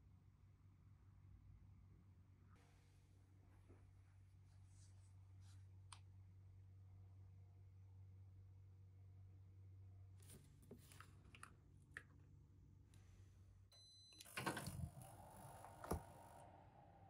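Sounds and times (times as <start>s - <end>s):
faint hum: 0.0s - 17.0s
short beep: 13.8s - 15.3s
fireplace gas rushing: 14.2s - 17.0s.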